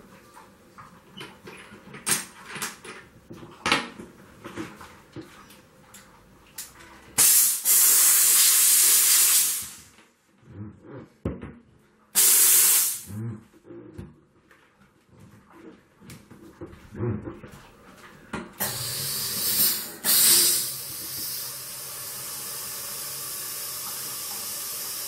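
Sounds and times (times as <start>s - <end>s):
steam jet hissing: 7.2s - 9.9s, 12.2s - 13.1s, 18.6s - 25.0s.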